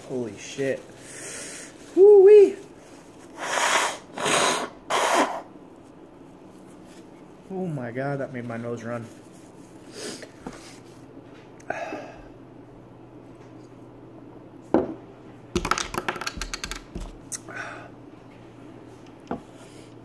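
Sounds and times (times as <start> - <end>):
low steady hum: 4.7 - 20.0
clicks and bumps: 15.6 - 17.2.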